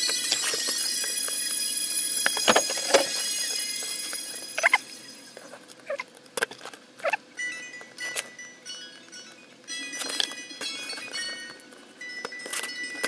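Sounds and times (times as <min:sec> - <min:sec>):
faint high-pitched tones: 0:00.0 - 0:06.0.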